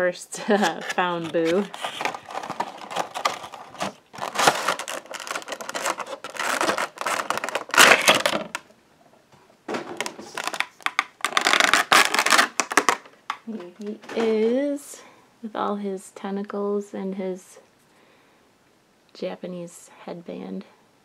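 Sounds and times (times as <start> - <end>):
plastic scraping against cardboard: 0.5 - 8.6, 10.0 - 13.0
plastic tray crackling: 0.5 - 8.7, 9.7 - 13.4.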